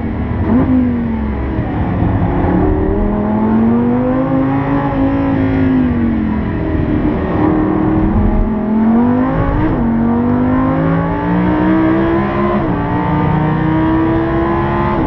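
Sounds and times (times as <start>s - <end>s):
car engine accelerating: 0.0s - 15.0s.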